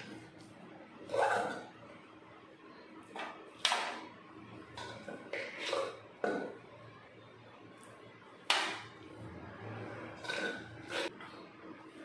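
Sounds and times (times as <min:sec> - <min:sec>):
spoon scraping metal plate: 0:01.1 - 0:01.8, 0:04.8 - 0:06.4, 0:09.8 - 0:11.2.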